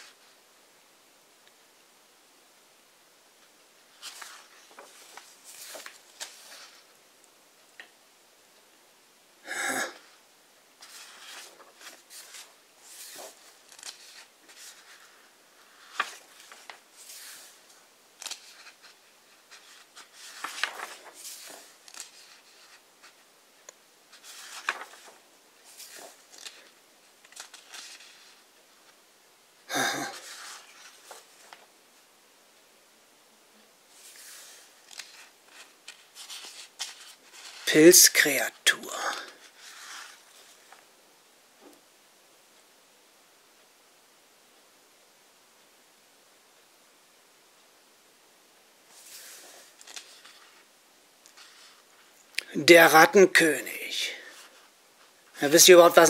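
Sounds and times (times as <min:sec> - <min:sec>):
book pages turning: 0:03.9 - 0:06.9, 0:10.8 - 0:23.2, 0:24.1 - 0:29.0, 0:30.1 - 0:31.7, 0:33.9 - 0:37.9, 0:39.2 - 0:40.8, 0:48.9 - 0:50.7, 0:51.3 - 0:52.4.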